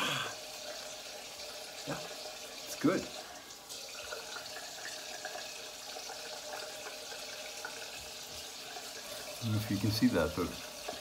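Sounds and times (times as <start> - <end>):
tap running into a sink: 3.9 - 11.0.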